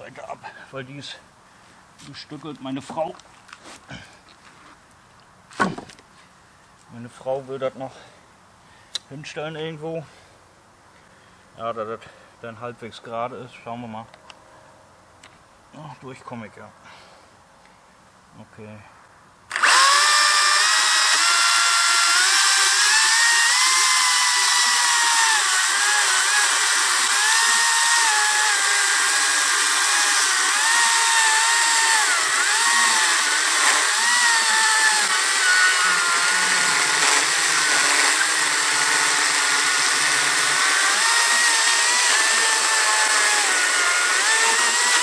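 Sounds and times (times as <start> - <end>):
electric chainsaw cutting wood: 19.5 - 45.0.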